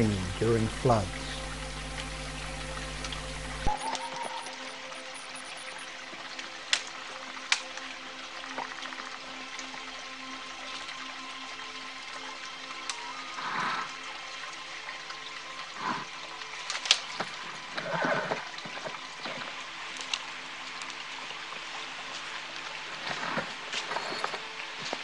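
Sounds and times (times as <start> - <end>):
stream water flowing: 0.0 - 25.0
branches and twigs snapping: 16.6 - 17.4, 19.9 - 21.0.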